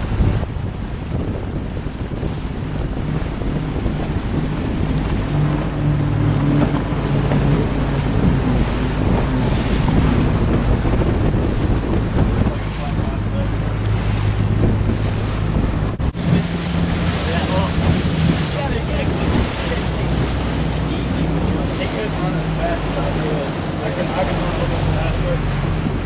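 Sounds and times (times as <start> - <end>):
outboard motors droning: 0.0 - 26.0
rushing water: 0.0 - 26.0
wind buffeting microphone: 0.0 - 26.0.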